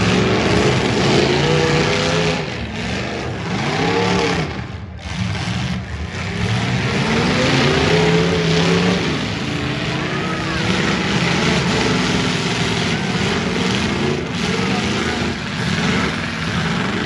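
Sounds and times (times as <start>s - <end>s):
car engines revving: 0.0s - 17.0s.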